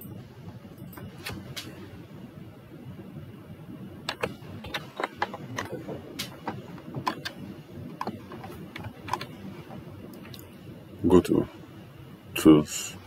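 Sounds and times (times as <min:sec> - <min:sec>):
low background hum: 0:00.0 - 0:13.0
keyboard and mouse clicking: 0:04.1 - 0:09.4.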